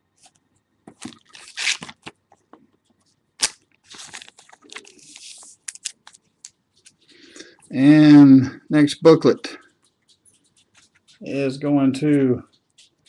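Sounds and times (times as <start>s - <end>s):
plastic sleeve crinkling: 0.2s - 2.8s, 3.4s - 7.1s
small clicks and taps: 9.6s - 11.3s, 12.0s - 13.0s.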